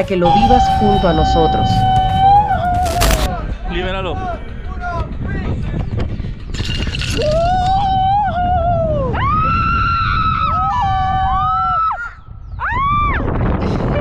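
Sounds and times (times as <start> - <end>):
low rushing noise: 0.0 - 6.4
people screaming: 7.2 - 13.3.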